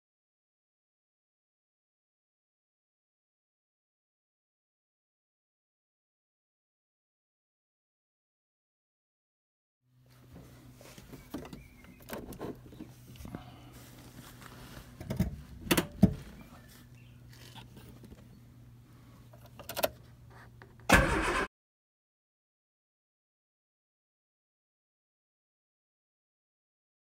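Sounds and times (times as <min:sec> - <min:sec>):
steady low hum: 0:09.9 - 0:20.9.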